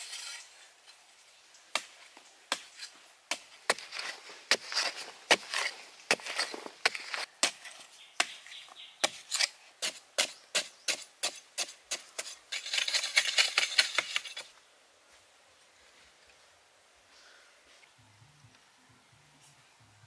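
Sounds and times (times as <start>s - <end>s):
dirt scraping and crumbling: 0.0s - 14.6s
hoe chopping into sandy soil: 1.7s - 8.4s.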